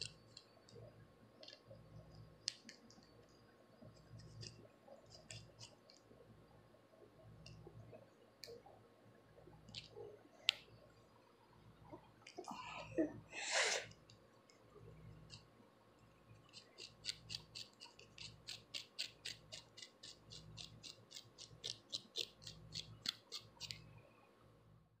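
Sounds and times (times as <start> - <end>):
fingernails scratching hair: 16.4 - 23.8.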